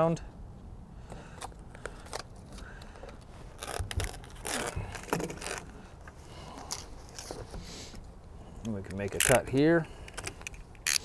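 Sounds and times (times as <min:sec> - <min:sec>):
tape rustling and scraping: 0:01.3 - 0:11.0.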